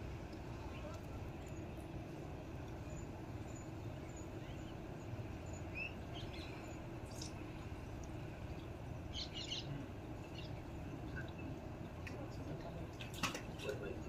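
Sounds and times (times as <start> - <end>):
steady low rumble: 0.0 - 14.0
faint bird chirps: 9.1 - 11.6.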